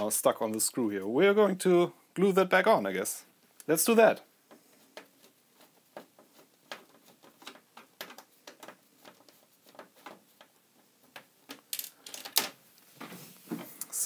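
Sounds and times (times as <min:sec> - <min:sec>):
screwdriver clicks and creaks on plastic: 0:04.5 - 0:12.5
scrape: 0:13.0 - 0:13.8.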